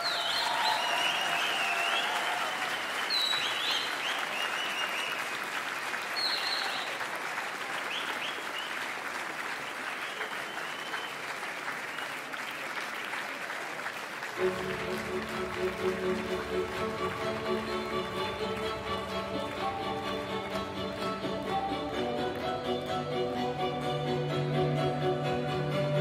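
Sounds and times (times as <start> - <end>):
high cheers: 0.0 - 9.0
audience applauding: 0.0 - 23.2.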